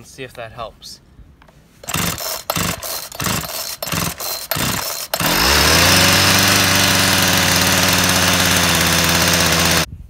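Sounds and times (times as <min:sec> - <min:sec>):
chainsaw starting and running: 0:01.8 - 0:09.9.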